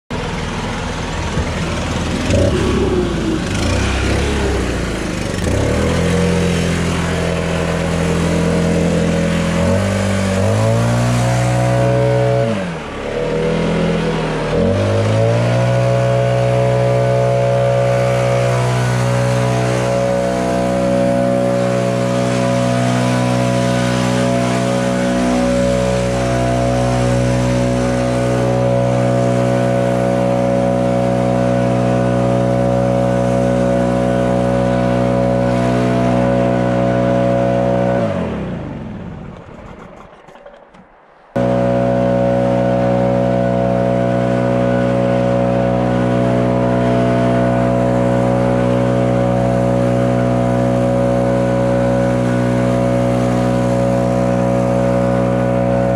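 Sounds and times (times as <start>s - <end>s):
backpack blower engine revving: 0.1s - 55.9s.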